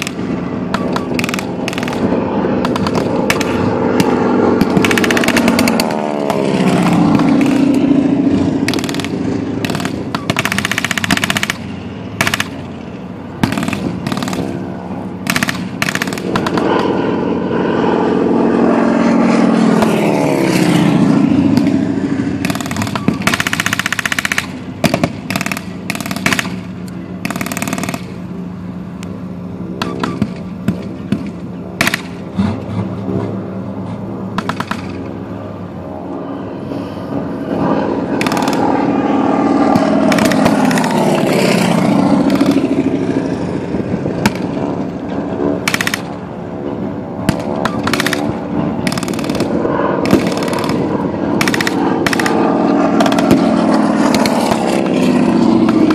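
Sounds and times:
machine guns firing: 0:00.0 - 0:07.8, 0:08.6 - 0:12.6, 0:13.4 - 0:14.6, 0:15.2 - 0:16.8, 0:22.4 - 0:28.2, 0:29.8 - 0:32.2, 0:34.4 - 0:35.0, 0:38.2 - 0:38.8, 0:39.7 - 0:42.9, 0:45.6 - 0:46.1, 0:47.3 - 0:55.9
armored vehicle engine droning: 0:00.0 - 0:55.9.

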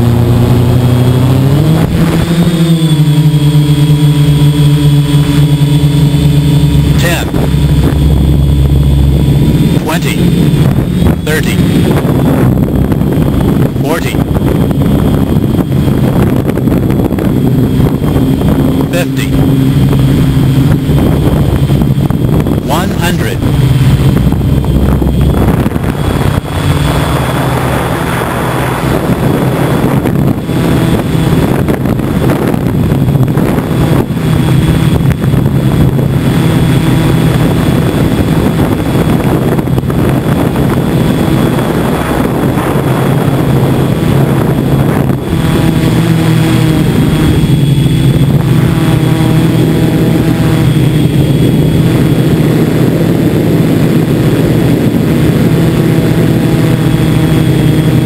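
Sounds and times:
drone motors and propellers humming: 0:00.0 - 0:58.0.

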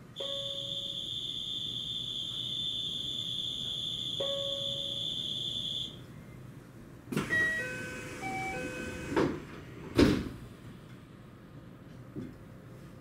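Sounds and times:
door chime: 0:00.2 - 0:01.1, 0:04.2 - 0:05.2, 0:07.3 - 0:09.0
high-pitched tone: 0:00.2 - 0:05.9
sliding doors thudding shut: 0:07.1 - 0:10.4.

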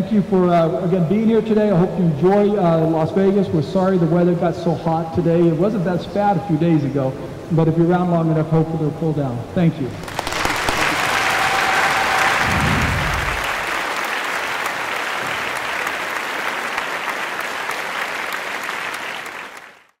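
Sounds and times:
audience applauding: 0:10.0 - 0:20.0.

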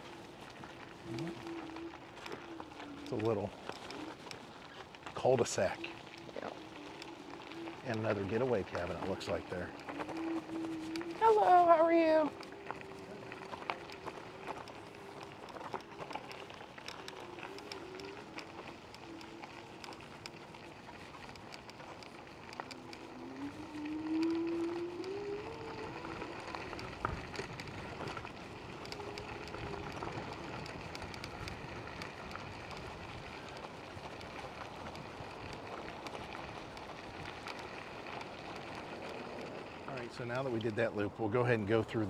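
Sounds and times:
tyres rolling over gravel road: 0:00.0 - 0:42.0
wind on microphone: 0:23.0 - 0:37.5.

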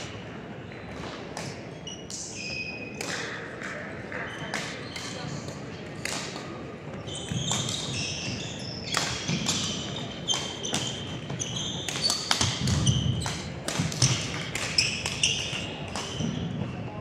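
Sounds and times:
rackets hitting shuttlecock: 0:00.9 - 0:16.8
sneakers squeaking on court: 0:04.1 - 0:05.6, 0:06.4 - 0:17.0.

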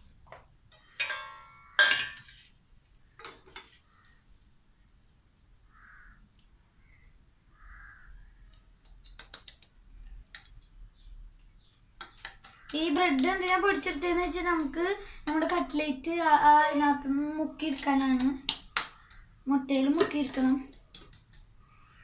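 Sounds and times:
steel plate clinking on stone: 0:00.8 - 0:02.3.

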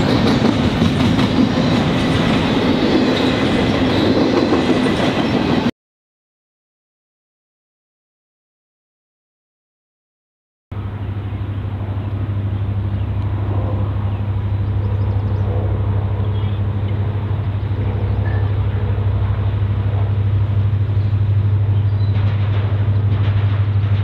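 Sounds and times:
diesel locomotive engine drone: 0:00.0 - 0:05.7, 0:10.7 - 0:24.0.

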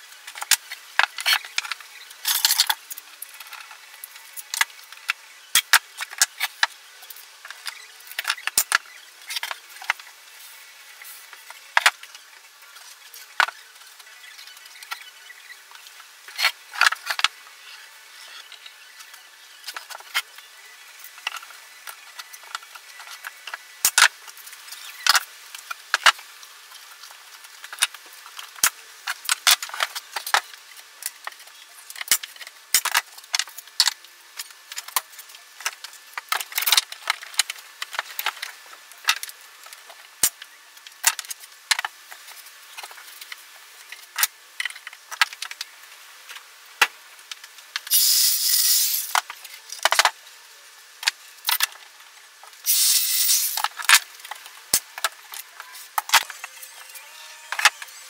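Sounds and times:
hiss-like burst: 0:47.9 - 0:49.2, 0:52.6 - 0:53.7.

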